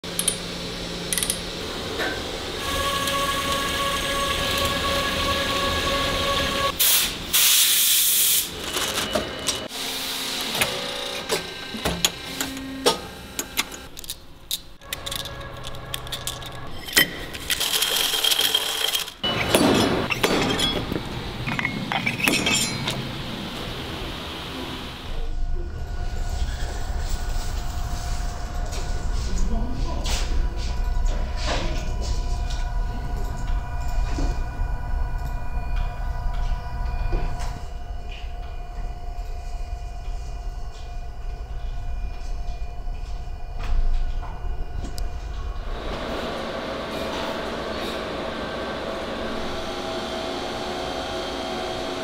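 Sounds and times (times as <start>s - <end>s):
machine whining: 0.1s - 6.8s, 14.7s - 52.0s
clinks of steel parts: 0.2s - 0.4s, 1.1s - 1.4s, 14.0s - 23.0s
loud hiss: 6.8s - 8.6s.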